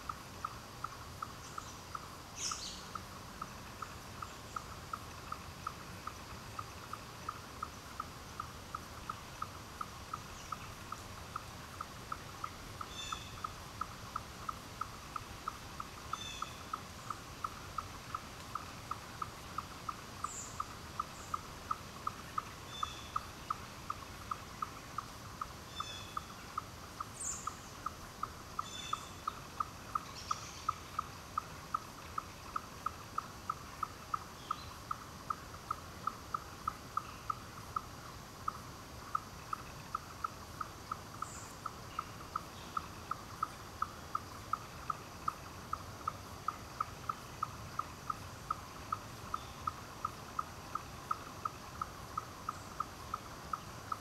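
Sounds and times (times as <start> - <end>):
bird chirps: 1.3 - 3.0, 9.1 - 13.6, 15.4 - 17.2, 19.6 - 25.1, 25.7 - 26.4, 27.2 - 27.9, 28.6 - 31.1, 41.2 - 43.5.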